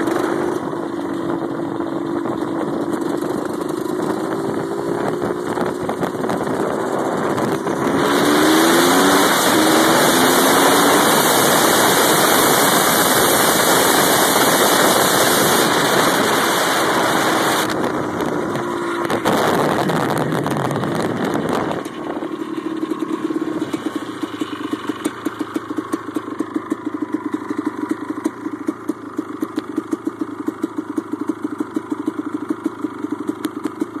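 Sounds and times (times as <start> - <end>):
wind on microphone: 0.0 - 22.4
dirt bike engine: 0.0 - 34.0.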